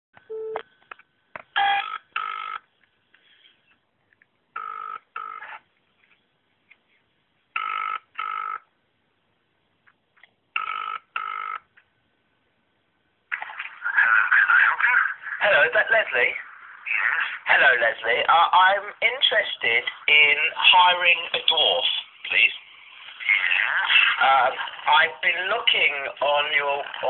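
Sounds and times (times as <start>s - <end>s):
telephone ringback tone: 0.3s - 0.6s.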